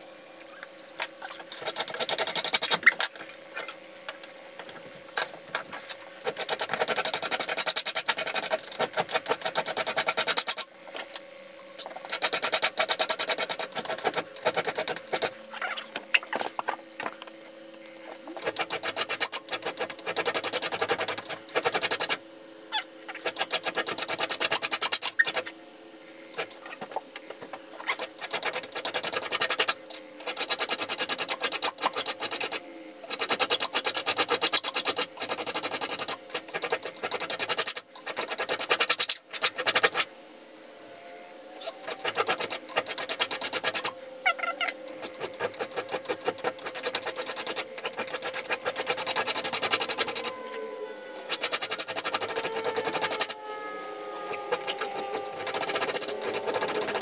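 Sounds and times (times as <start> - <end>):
file rasping on steel blade: 1.2 - 3.0, 5.8 - 10.7, 11.8 - 15.4, 18.4 - 22.2, 23.1 - 25.5, 26.3 - 27.0, 27.8 - 40.1, 41.6 - 44.0, 44.9 - 50.4, 51.2 - 53.4, 54.2 - 57.0.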